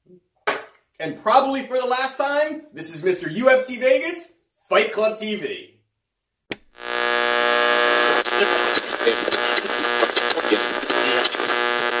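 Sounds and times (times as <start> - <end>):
buzzy held note with fast beat: 6.8 - 12.0.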